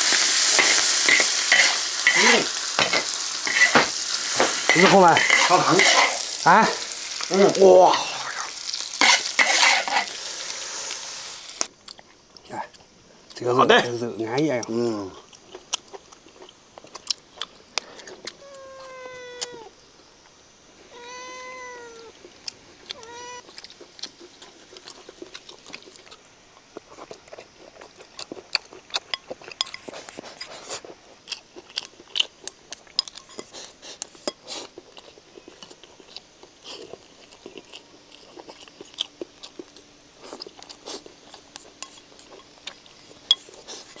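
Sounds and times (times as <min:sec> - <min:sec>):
chewing: 0:11.6 - 0:13.4, 0:14.4 - 0:19.6, 0:22.0 - 0:44.0
cat meowing: 0:18.4 - 0:19.7, 0:20.9 - 0:22.2, 0:22.9 - 0:23.5.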